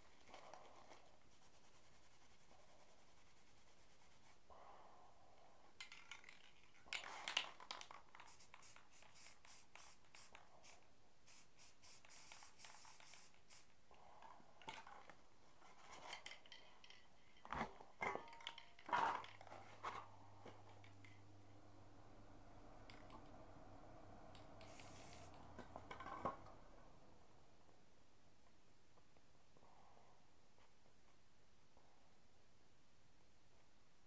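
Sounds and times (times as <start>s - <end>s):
cans and tools being handled: 5.8s - 10.4s, 11.3s - 21.3s, 24.3s - 26.6s
aerosol spray can hissing: 8.2s - 13.7s, 24.6s - 25.5s
low steady hum: 13.8s - 30.6s.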